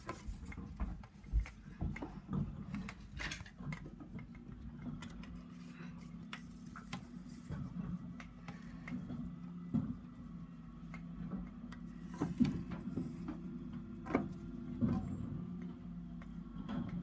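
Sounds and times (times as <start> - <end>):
truck engine low hum: 3.7 - 17.0.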